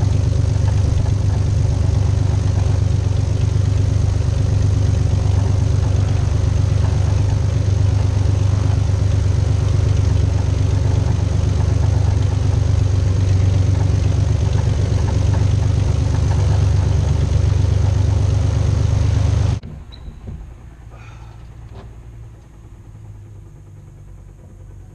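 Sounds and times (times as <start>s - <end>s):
aircraft engine idling: 0.0s - 24.9s.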